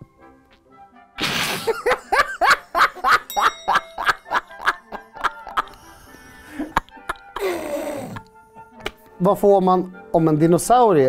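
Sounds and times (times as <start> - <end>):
background music: 0.0 - 11.0
man laughing heartily: 1.3 - 8.2.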